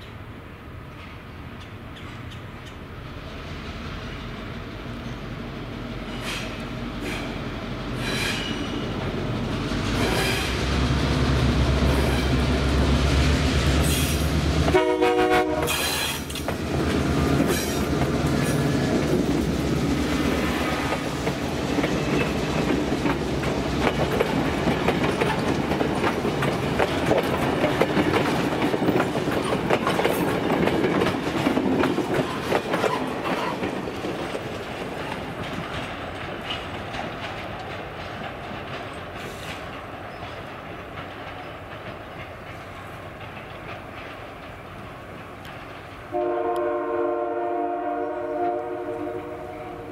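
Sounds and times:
diesel locomotive engine droning: 0.0 - 49.9
train wheels clicking over rail joints: 0.9 - 46.8
train horn blast: 13.9 - 16.2, 46.1 - 49.9.

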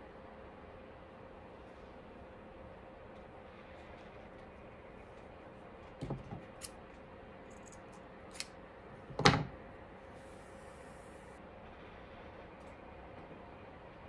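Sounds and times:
faint steady hum: 0.0 - 14.0
objects knocking on tabletop: 6.0 - 6.4.

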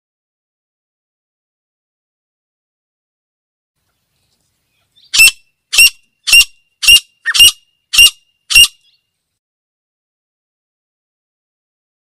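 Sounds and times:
bird giving harsh calls: 4.9 - 9.0.

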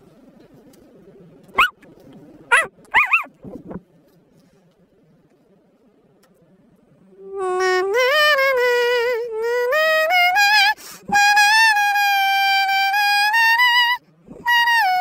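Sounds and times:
dog howling: 2.5 - 3.3.

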